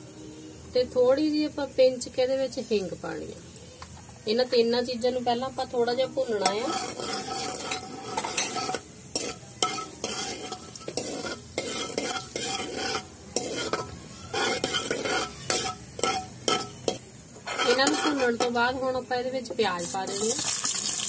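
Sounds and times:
spices sizzling in hot oil: 0.1 - 21.0
ladle scraping metal pan: 6.1 - 18.6.

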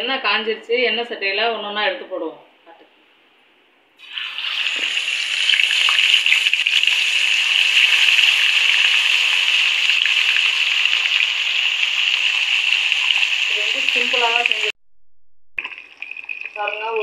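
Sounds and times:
hot oil sizzling: 4.0 - 14.8, 15.6 - 17.0.

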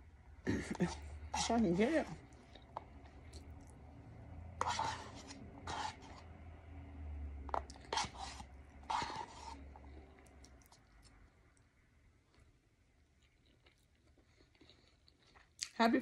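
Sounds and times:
metal spoon scraping paper cup: 0.7 - 2.2, 4.6 - 6.3, 7.8 - 9.6.

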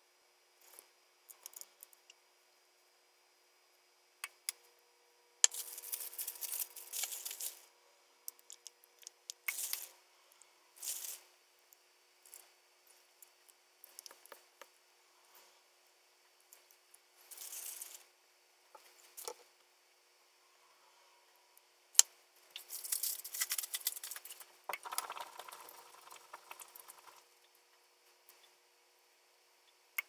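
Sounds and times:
rustling and scraping: 5.5 - 7.7, 10.8 - 11.3, 17.2 - 18.1, 22.6 - 27.2.

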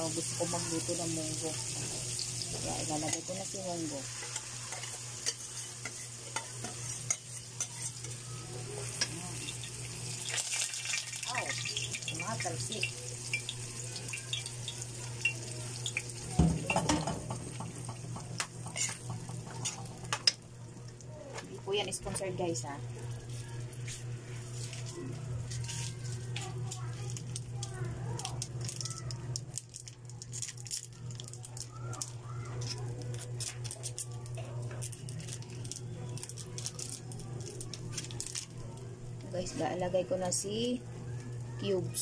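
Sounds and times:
beans sizzling in oil: 0.0 - 20.5
sizzling: 0.0 - 42.0.

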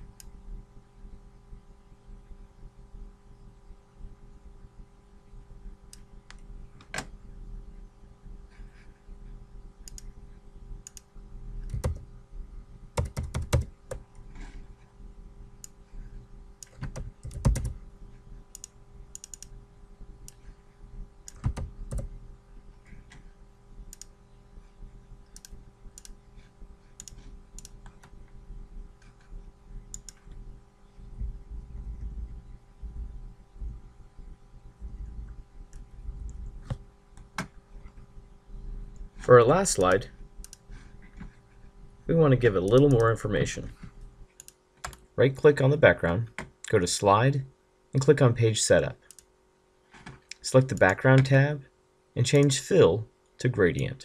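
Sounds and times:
faint steady hum: 0.0 - 54.0
keyboard keystrokes and clicks: 10.8 - 12.0, 13.0 - 14.2, 16.6 - 17.8, 18.5 - 19.5, 21.3 - 22.1, 27.0 - 28.2, 29.9 - 30.2.

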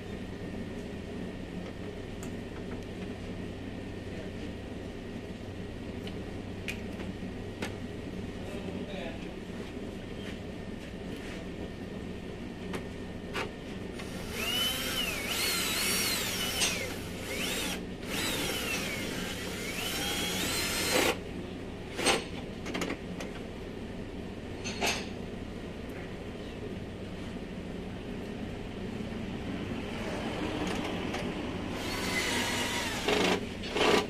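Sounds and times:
cordless drill whine: 14.0 - 21.2, 31.8 - 33.4.

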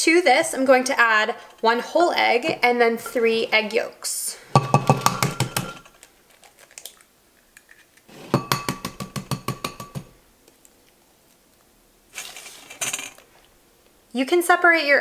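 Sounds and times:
eggs cracking on glass bowl: 4.6 - 10.1.

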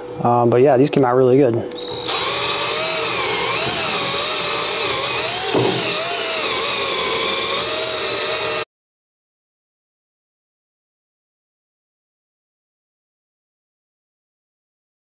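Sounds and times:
cordless drill sanding wood: 1.8 - 8.7.

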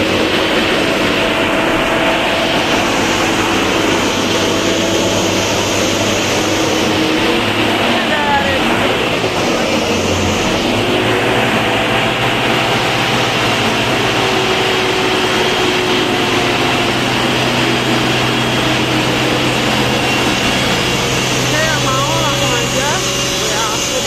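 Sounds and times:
diesel truck engine idling: 0.0 - 24.0.

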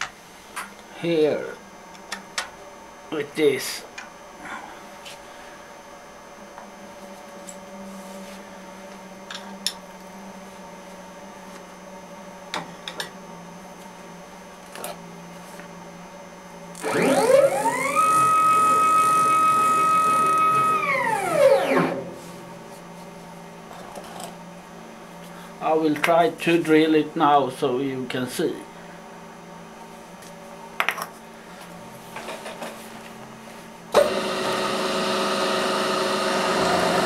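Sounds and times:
milling machine motor whine: 16.7 - 22.6, 33.9 - 37.0.

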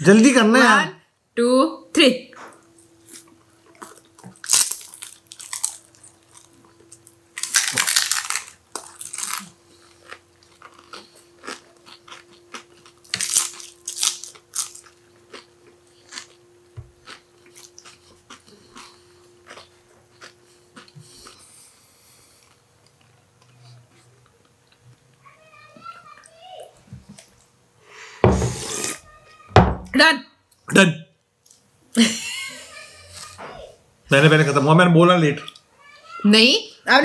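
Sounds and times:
crisp shells crunching: 3.8 - 15.4.

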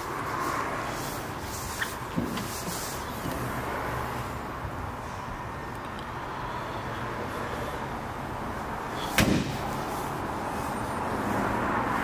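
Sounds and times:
sharp thump: 9.1 - 9.8.

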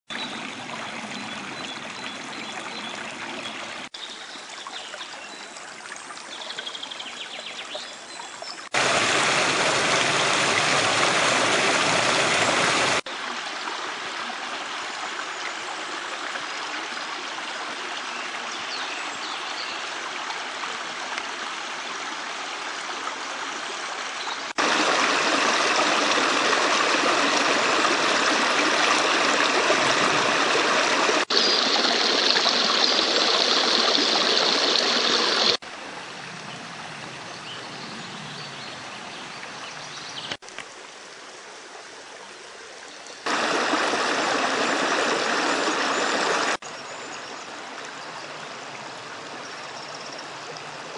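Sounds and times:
brook rushing over rocks: 8.7 - 13.2, 24.5 - 35.6, 43.2 - 46.6.

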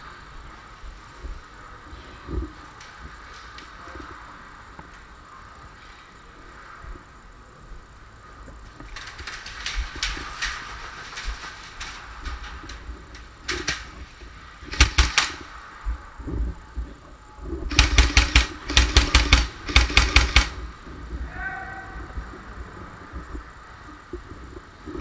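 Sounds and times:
airsoft rifle firing bursts: 14.6 - 15.5, 17.7 - 20.6.

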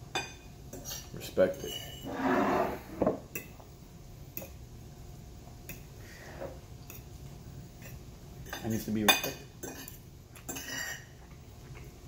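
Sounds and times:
fork scraping ceramic plate: 0.8 - 3.0.

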